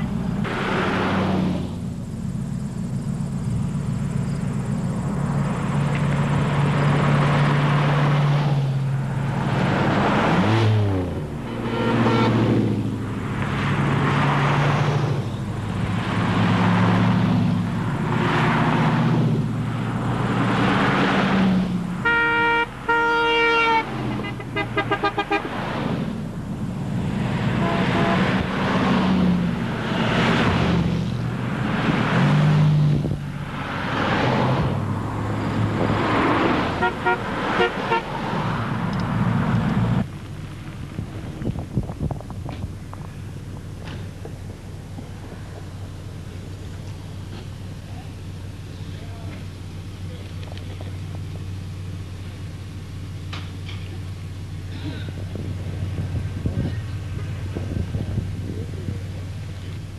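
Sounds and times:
low engine hum: 0:00.0 - 0:59.9
vehicles whooshing past: 0:00.0 - 0:59.9
car horn honking: 0:11.4 - 0:12.8, 0:22.0 - 0:25.6, 0:27.5 - 0:28.5, 0:36.7 - 0:38.2.

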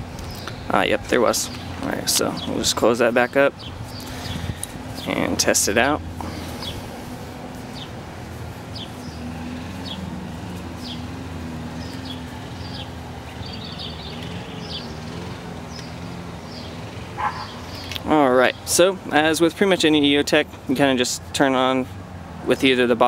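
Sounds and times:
low engine hum: 0:00.0 - 0:19.1
bird chirping: 0:00.2 - 0:00.7, 0:01.4 - 0:07.0, 0:07.7 - 0:08.0, 0:08.6 - 0:18.8.

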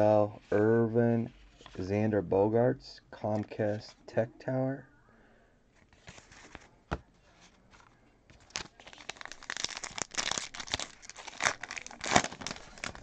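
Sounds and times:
card wrapper tearing and crinkling: 0:08.4 - 0:13.0.

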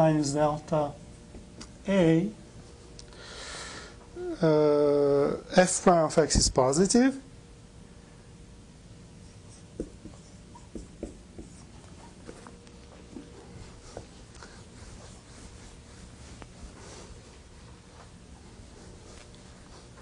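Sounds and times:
faint scratching of writing: 0:09.2 - 0:20.0.

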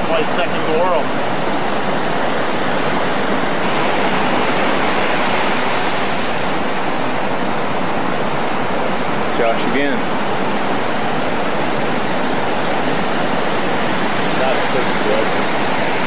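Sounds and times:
ocean surf breaking: 0:02.3 - 0:08.4.

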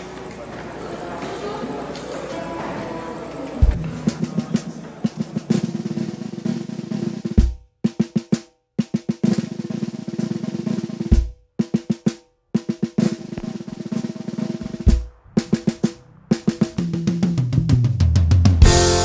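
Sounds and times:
snare drum rolls: 0:03.5 - 0:19.0
bass drum hits: 0:14.6 - 0:19.0.

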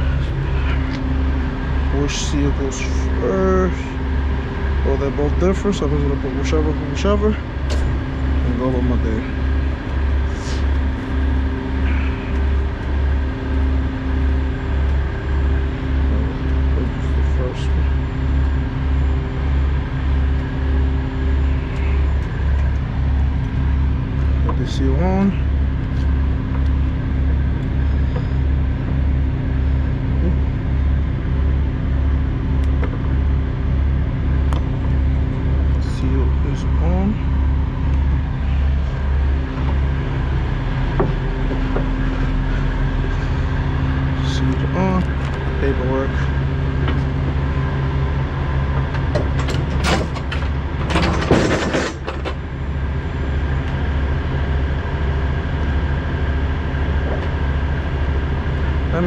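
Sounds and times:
diesel truck engine idling: 0:00.0 - 0:59.0
low mechanical hum: 0:00.0 - 0:59.0
metal clanks: 0:48.8 - 0:52.4.

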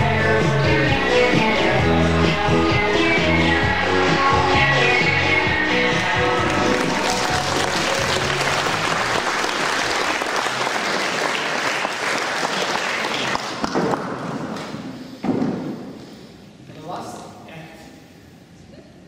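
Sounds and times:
music: 0:00.0 - 0:10.1
audience applauding: 0:06.4 - 0:14.0.

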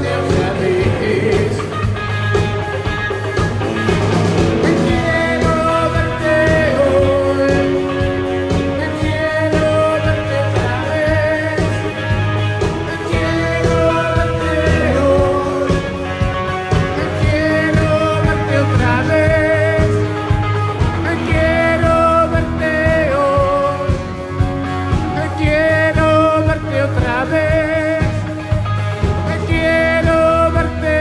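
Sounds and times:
person singing into microphone: 0:00.0 - 0:02.0, 0:04.5 - 0:31.0
bass guitar: 0:00.0 - 0:31.0
drums: 0:00.0 - 0:31.0
rock band playing live: 0:00.0 - 0:31.0.

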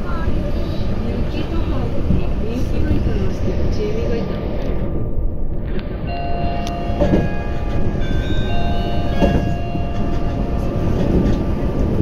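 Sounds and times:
train rumbling: 0:00.0 - 0:12.0
high-pitched tones: 0:06.1 - 0:11.4
knock inside train carriage: 0:06.9 - 0:07.9, 0:08.9 - 0:12.0.

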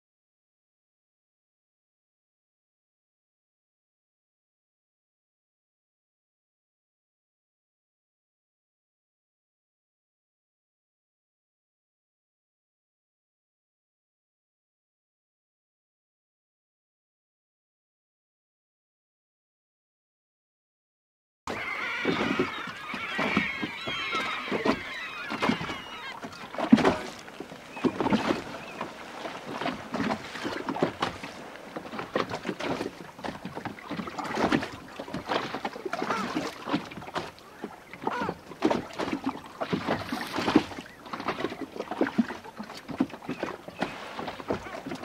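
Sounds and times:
seabirds calling: 0:21.5 - 0:45.0
water slapping against boat hull: 0:21.5 - 0:45.0.

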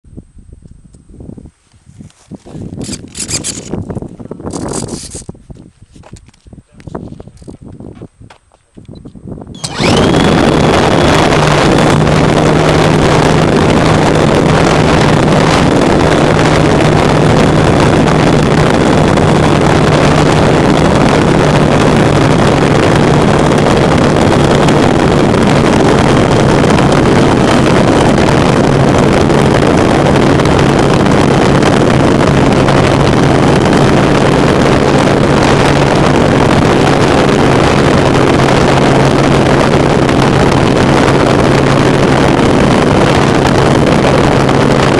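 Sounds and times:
wind on microphone: 0:00.0 - 0:44.9
electric motor and propeller whine: 0:09.5 - 0:44.9.

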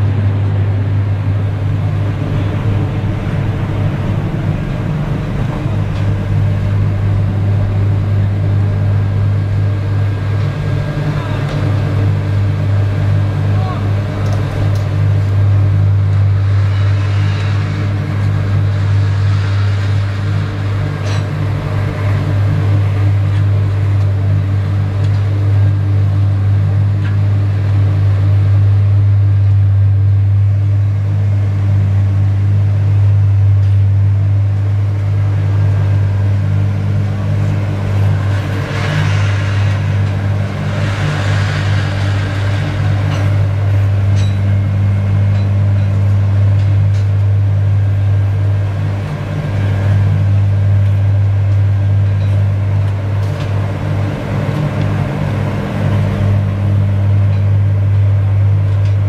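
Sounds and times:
rushing noise: 0:00.0 - 0:23.8, 0:35.1 - 0:46.6
low engine drone: 0:00.0 - 0:59.0
wavering machine hum: 0:00.0 - 0:59.0.

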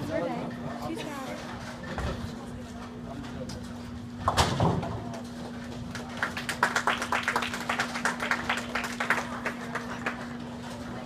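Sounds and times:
people clapping: 0:05.5 - 0:10.9.

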